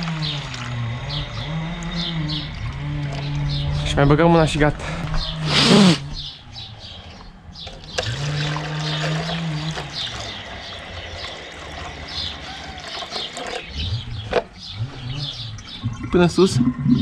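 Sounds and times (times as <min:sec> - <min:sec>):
water pouring into plastic cup: 0:00.0 - 0:01.0, 0:07.7 - 0:13.7.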